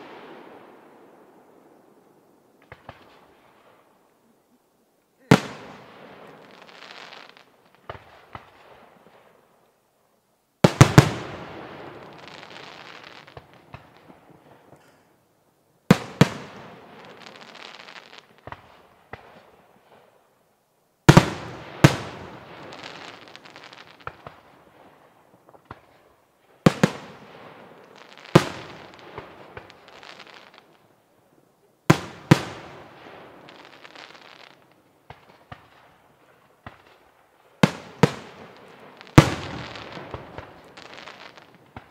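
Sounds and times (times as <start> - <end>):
firework crackling tail: 0.0 - 9.9, 10.6 - 41.9.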